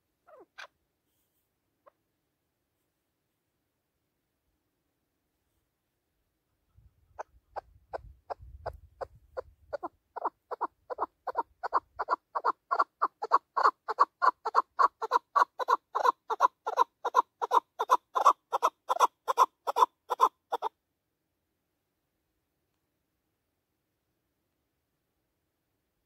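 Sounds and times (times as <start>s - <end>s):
partridge clucking call: 7.2s - 20.7s.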